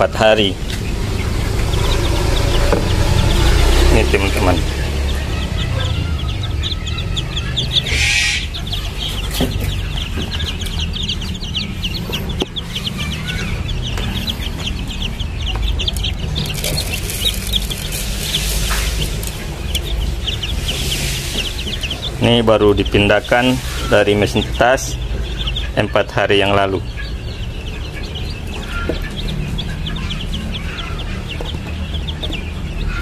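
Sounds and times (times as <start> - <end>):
chicks peeping: 0.0 - 33.0
low steady rumble: 0.0 - 33.0.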